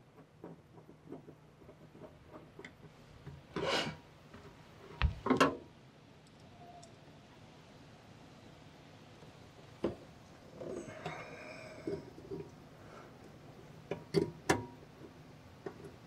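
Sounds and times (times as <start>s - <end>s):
metal scrape: 3.5s - 4.0s.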